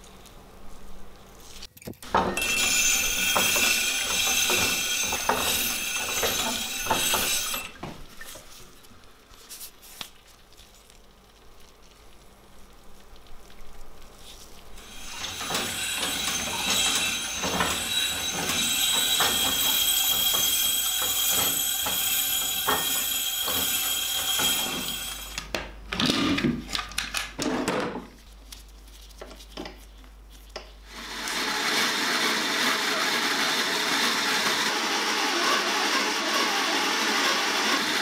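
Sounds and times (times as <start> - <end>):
axe grinding on grindstone: 2.0 - 7.8.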